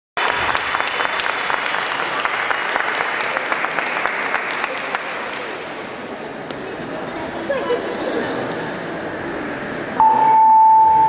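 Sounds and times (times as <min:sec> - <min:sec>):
audience applauding: 0:00.2 - 0:05.9.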